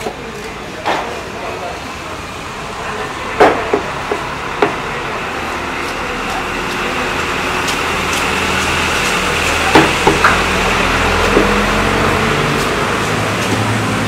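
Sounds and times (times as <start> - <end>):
sharp knocks: 9.7 - 10.5.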